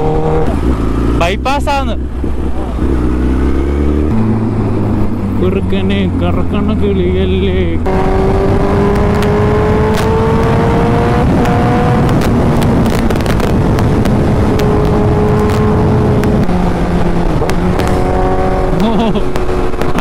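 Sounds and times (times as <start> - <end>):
motorcycle engine cruising: 0.0 - 20.0
wind noise on microphone: 7.8 - 20.0.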